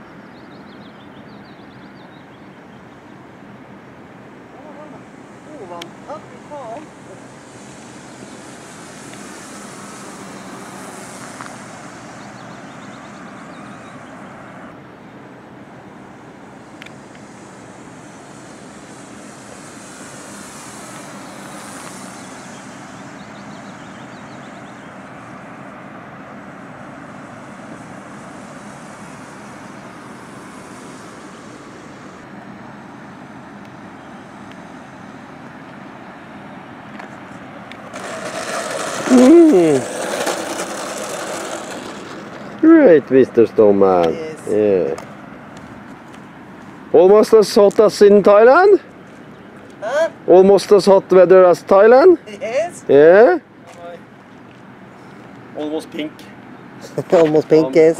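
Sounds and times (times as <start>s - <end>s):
model plane motor droning: 5.5s - 14.7s, 16.7s - 24.5s, 37.7s - 42.9s.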